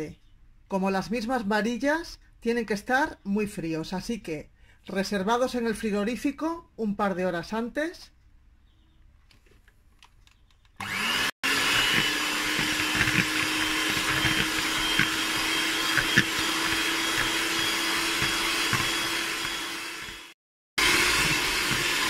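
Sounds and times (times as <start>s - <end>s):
electric hand mixer running: 10.8s - 22.0s.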